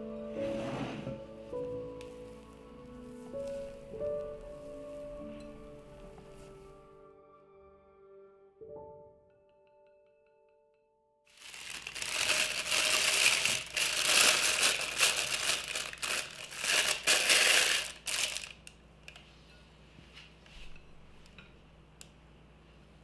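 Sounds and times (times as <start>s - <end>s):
plastic bag crinkling: 11.3s - 18.7s.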